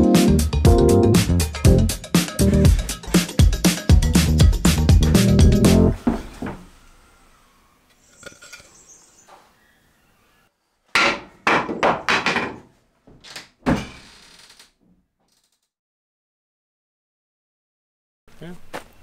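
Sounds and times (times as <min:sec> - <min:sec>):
heavy wooden knocks: 0:11.0 - 0:14.0.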